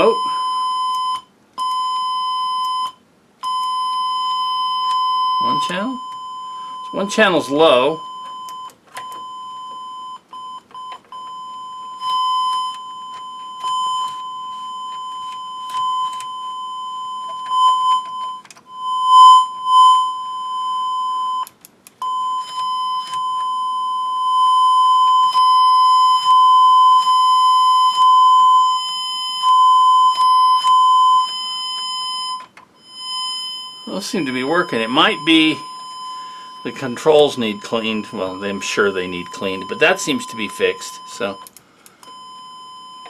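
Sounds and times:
high test tone: 11.8 - 43.0.

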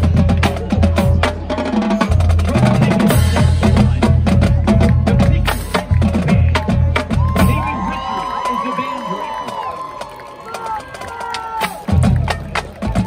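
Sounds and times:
bass drums: 0.0 - 8.6, 11.6 - 13.0
snare and tenor drums: 0.0 - 8.7.

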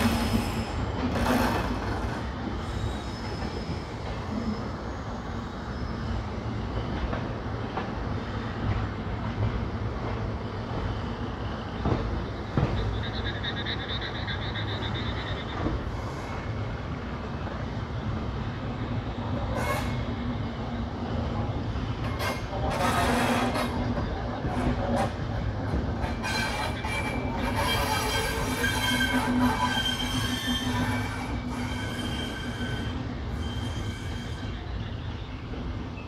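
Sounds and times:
train rumbling on rails: 0.0 - 36.0
high pulsing squeal: 11.2 - 16.8.

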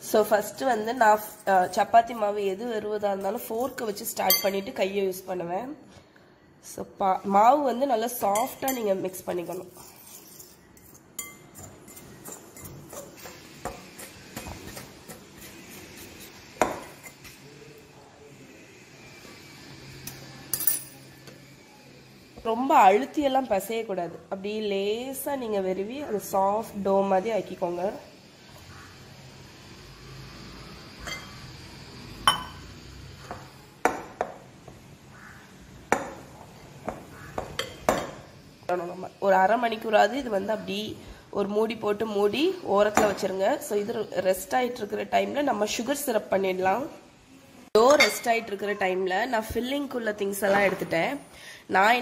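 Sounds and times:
ringing clink: 4.3 - 4.6
rings clinking on glass bowl: 4.3 - 4.6, 20.5 - 21.1
fork scraping glass bowl: 8.4 - 17.4.

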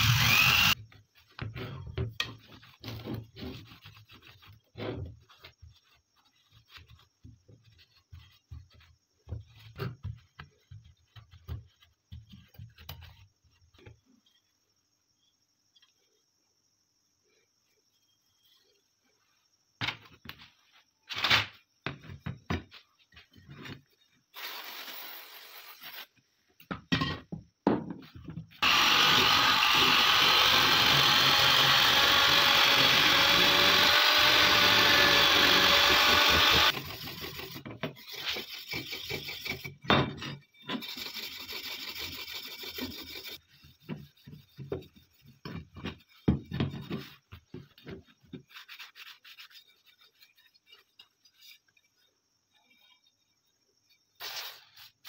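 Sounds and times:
electric drill scouring rust: 0.0 - 0.8, 28.6 - 37.6.

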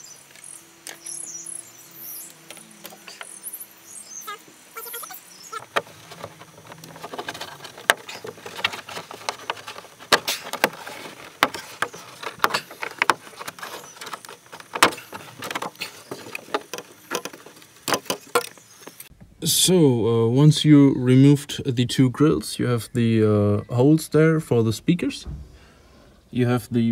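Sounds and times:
plastic grille rattling: 5.6 - 18.5.

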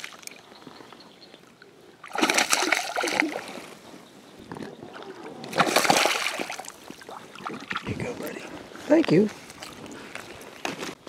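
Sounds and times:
fish thrashing and splashing: 2.0 - 3.6, 5.4 - 8.0.

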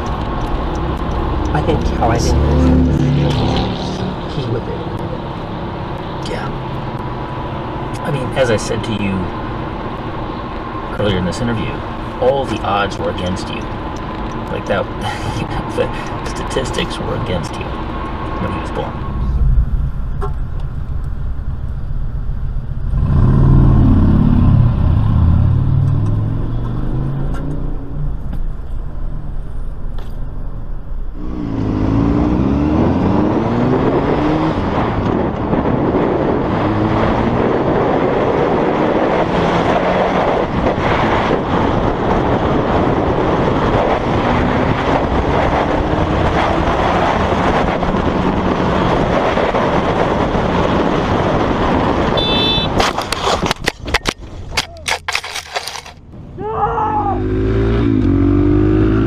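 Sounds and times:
truck engine revving: 0.0 - 7.0, 17.6 - 52.8, 57.1 - 59.0
wind rushing at speed: 17.1 - 54.6
motorcycle engine accelerating: 18.2 - 52.8, 57.0 - 59.0.

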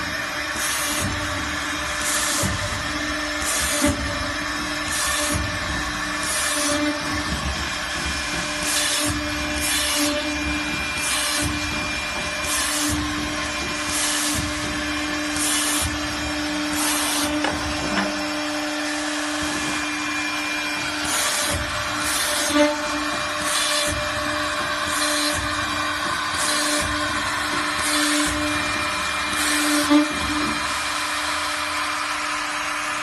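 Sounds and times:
drilling machine motor hum: 0.0 - 33.0.

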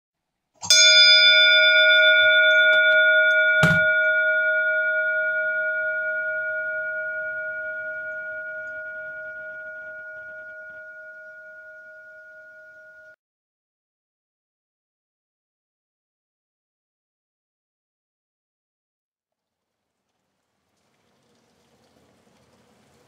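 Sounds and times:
bell ringing: 0.6 - 13.2
soft knock: 3.6 - 3.9.

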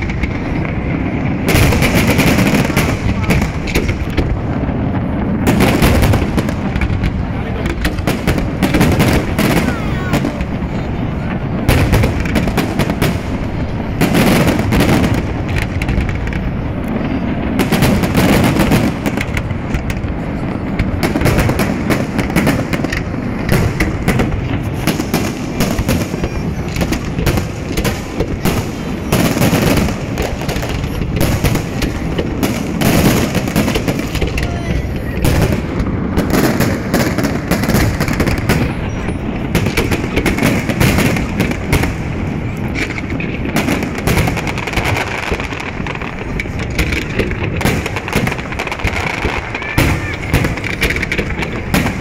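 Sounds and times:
fireworks bursts and booms: 0.0 - 52.0
fireworks crackling: 0.0 - 52.0.

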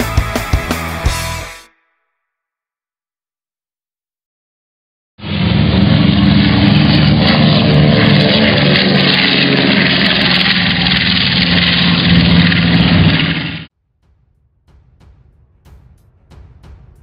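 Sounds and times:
jet planes roaring past: 5.2 - 13.7.

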